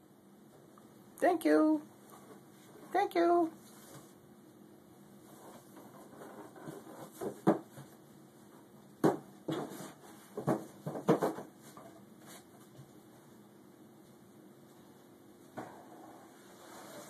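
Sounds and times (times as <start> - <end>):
cardboard box thumping on tiled floor: 9.0 - 11.5.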